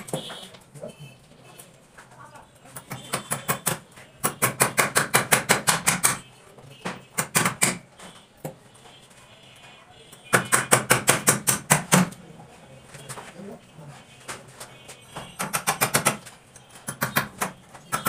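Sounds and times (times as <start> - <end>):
hammer striking rapidly: 3.1 - 6.2, 10.3 - 12.1, 15.4 - 16.2.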